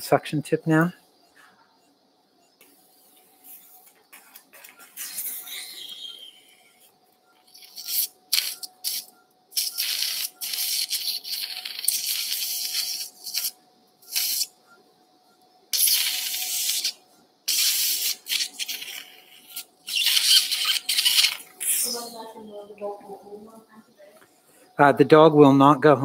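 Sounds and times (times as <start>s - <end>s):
faint steady tone: 0.0s - 18.0s
suction tip hissing: 4.9s - 6.5s, 7.5s - 14.5s, 15.7s - 22.2s.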